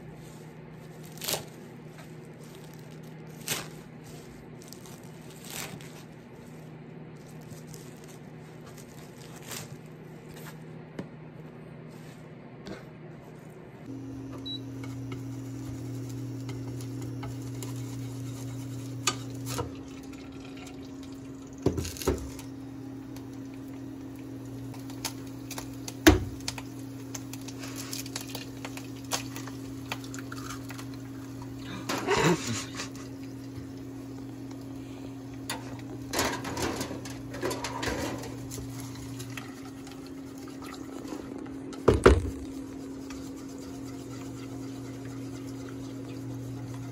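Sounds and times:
electric hum: 13.8s - 46.9s
egg sizzling in oil: 13.9s - 46.9s
chopsticks scraping a pan: 14.8s - 19.6s, 42.6s - 46.9s
egg cracking on pan: 24.4s - 31.6s.

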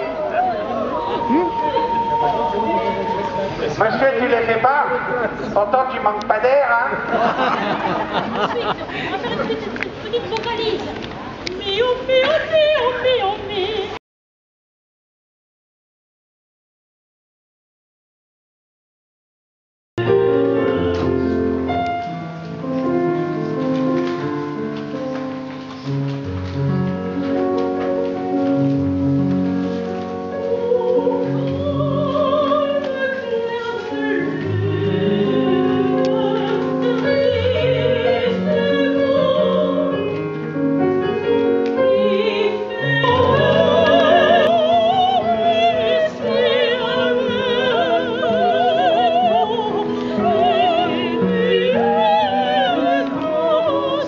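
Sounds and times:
woman singing operatically: 0.0s - 3.6s, 11.5s - 14.0s, 30.3s - 40.3s, 41.8s - 54.0s
grand piano playing: 0.0s - 9.8s, 20.0s - 54.0s.

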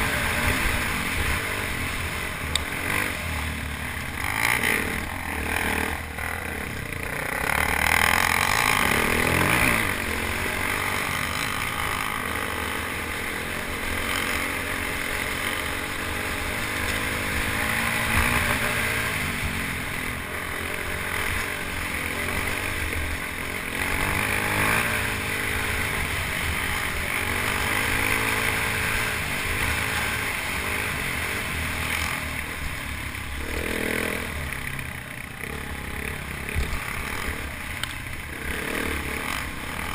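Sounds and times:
motorcycle engine under throttle: 0.0s - 39.9s.

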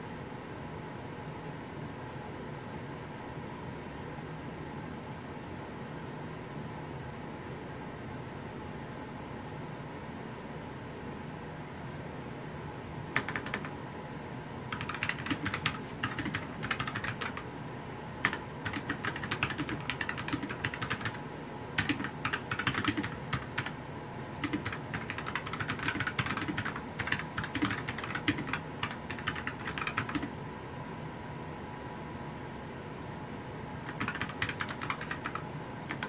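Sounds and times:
steady background hum: 0.0s - 36.0s
keyboard typing clicks: 13.2s - 13.7s, 14.7s - 17.4s, 18.2s - 21.2s, 21.8s - 23.8s, 24.4s - 30.3s, 33.9s - 36.0s.

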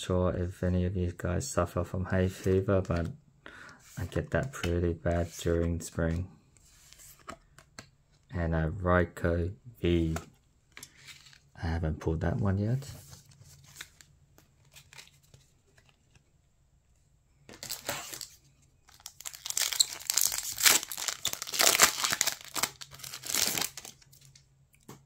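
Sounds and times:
foil wrapper crinkling and tearing: 17.6s - 24.4s.

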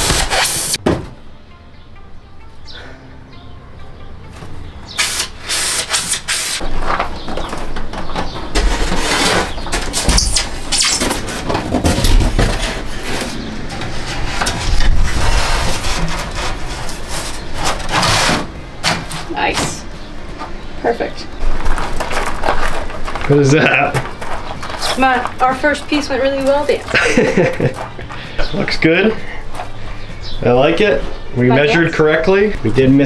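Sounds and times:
foam board scraping on metal floor: 8.6s - 18.5s.

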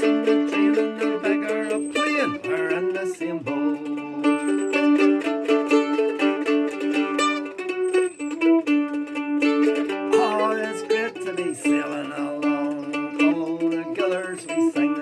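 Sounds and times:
mandolin fast picking melody: 0.0s - 15.0s.

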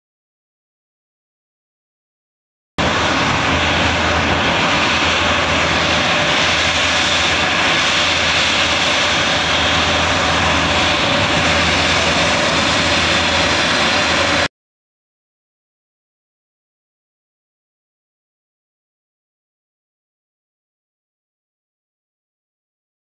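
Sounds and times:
jet engines running: 2.8s - 14.5s.

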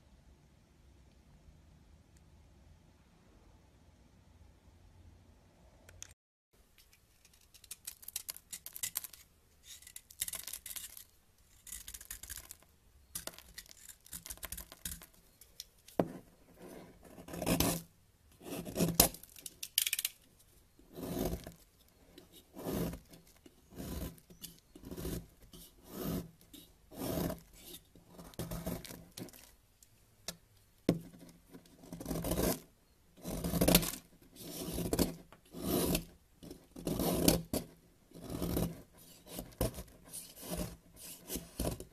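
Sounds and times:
knife scraping soap: 7.2s - 20.1s, 20.8s - 29.6s, 31.0s - 41.9s.

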